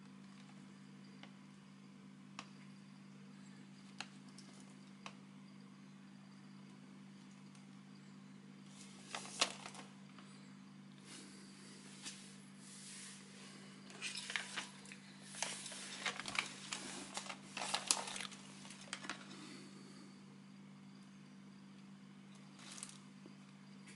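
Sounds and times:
plastic sheeting crinkling: 8.7 - 9.9, 11.9 - 19.2.

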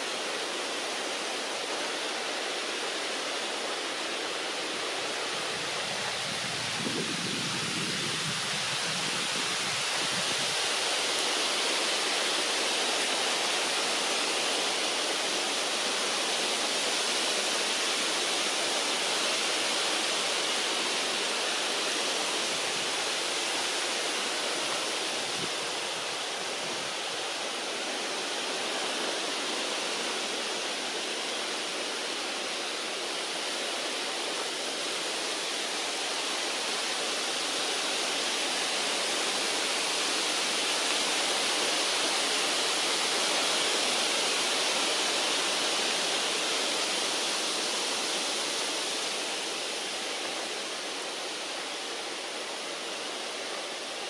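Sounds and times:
steady rushing hiss: 0.0 - 54.0.

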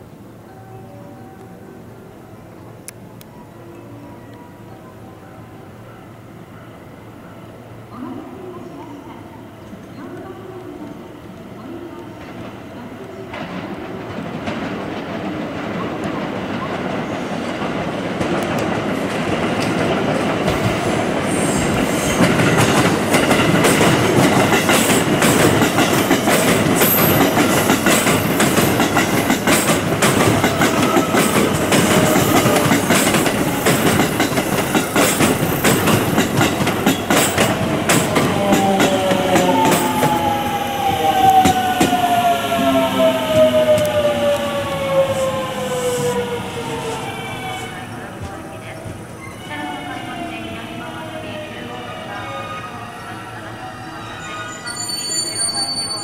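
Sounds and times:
electric train passing: 0.0 - 56.0
wheels clacking over rail joints: 22.2 - 42.3.

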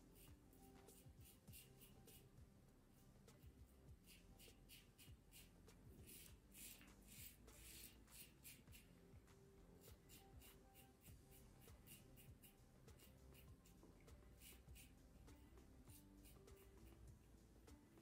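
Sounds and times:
razor rasping on stubble: 0.0 - 2.3, 4.0 - 8.9, 9.8 - 13.6, 14.3 - 15.0.

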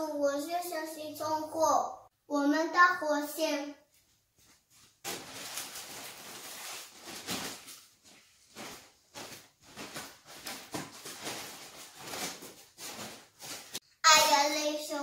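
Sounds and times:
plastic bags dragged on tiles: 4.9 - 13.8.

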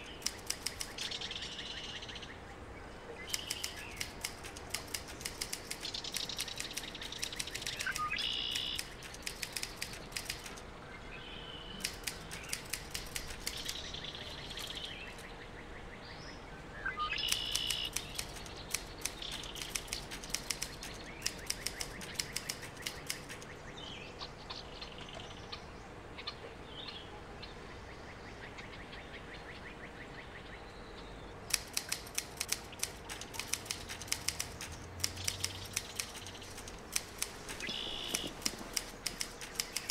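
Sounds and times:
typewriter keys clacking: 0.0 - 1.2, 3.4 - 10.6, 11.8 - 13.8, 17.3 - 23.5, 31.5 - 39.9
small birds chirping: 0.0 - 39.9.

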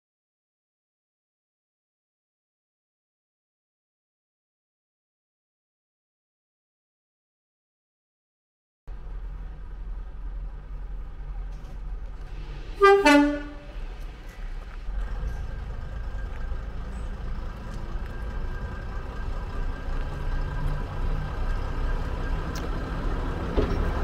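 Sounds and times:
low engine rumble: 8.9 - 24.0
two-tone locomotive horn: 12.7 - 13.8.

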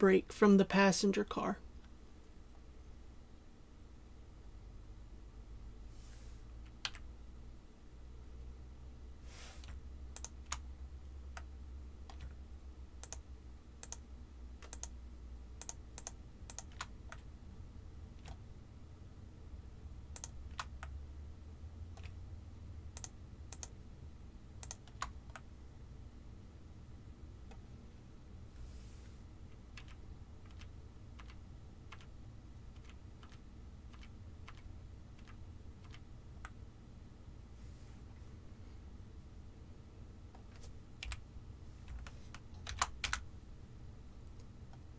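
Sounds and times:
faint low hum: 0.0 - 44.9
keyboard and mouse clicks: 6.6 - 7.1, 9.6 - 10.7, 11.3 - 12.4, 13.0 - 14.0, 14.6 - 15.0, 15.6 - 17.3, 18.2 - 18.4, 20.1 - 21.0, 21.9 - 22.2, 22.9 - 23.8, 24.6 - 25.5, 29.5 - 36.6, 40.3 - 41.2, 41.8 - 43.3
mouse and keyboard clicks: 9.6 - 10.6, 12.1 - 12.4, 14.6 - 15.0, 15.6 - 17.3, 20.1 - 20.9.

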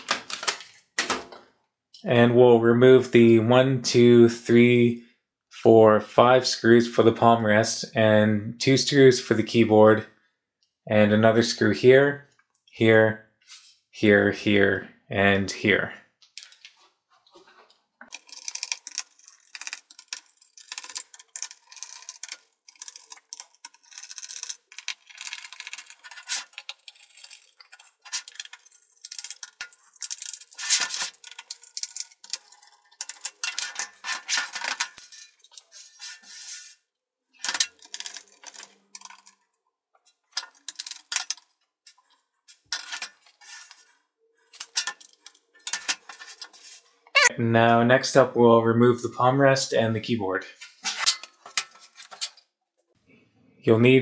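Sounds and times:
screwdriver turning screws: 18.1 - 35.7
small metal screws clinking: 18.1 - 35.9, 37.4 - 43.8.

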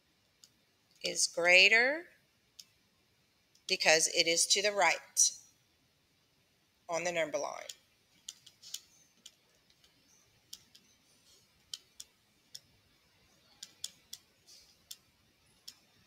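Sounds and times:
stylus tapping touchscreen: 7.0 - 16.0.

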